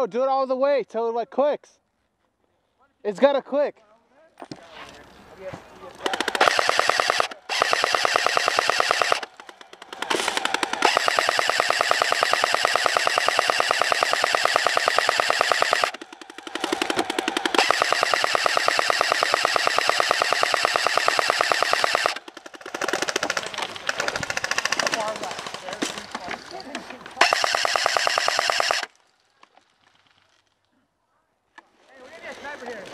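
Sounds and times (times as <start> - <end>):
airsoft gun firing full-auto: 6.0 - 25.6, 27.2 - 28.9.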